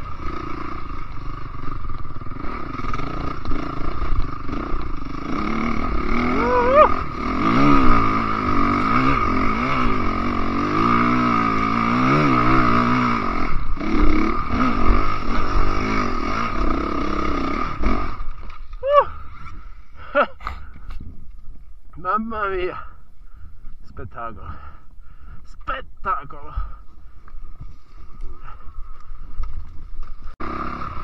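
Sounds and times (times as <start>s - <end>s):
dirt bike engine revving: 0.0s - 20.1s, 30.2s - 31.0s.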